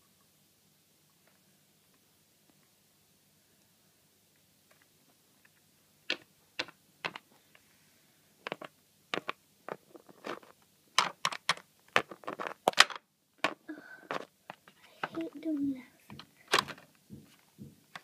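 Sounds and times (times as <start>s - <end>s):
sharp clicks and taps: 12.7s - 18.0s.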